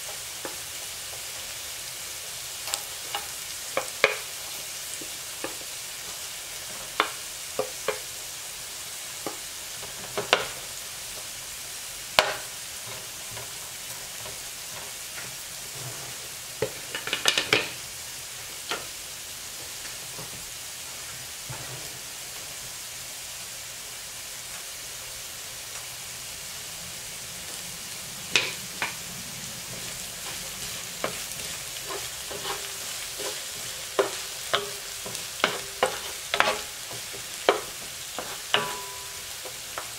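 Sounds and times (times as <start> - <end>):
onion sizzling in hot oil: 0.0 - 39.9
wooden spoon scraping pan: 12.8 - 17.8, 29.6 - 39.9.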